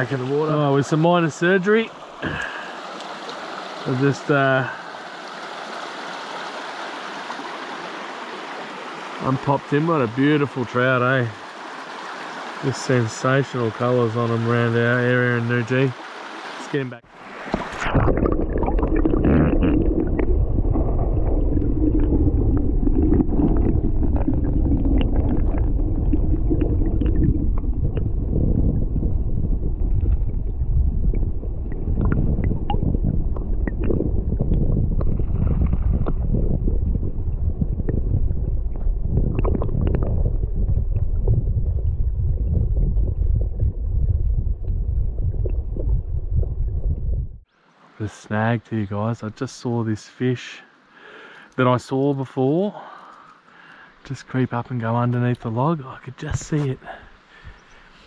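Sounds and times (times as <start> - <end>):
muffled underwater water rumble: 17.5 - 47.5.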